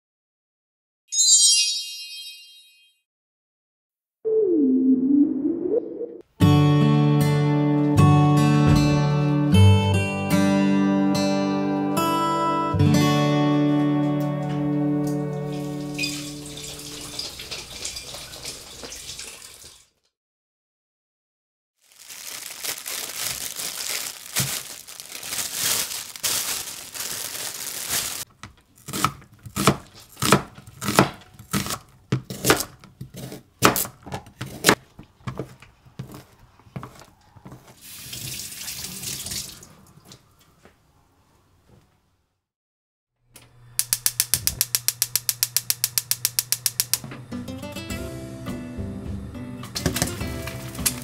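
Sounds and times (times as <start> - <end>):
knife chopping on cutting board: 28.9 - 36.2
gas igniter clicking: 43.8 - 47.0.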